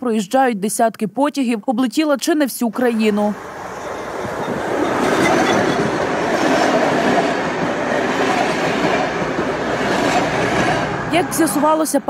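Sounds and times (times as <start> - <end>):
passenger train rumbling past: 2.8 - 12.0.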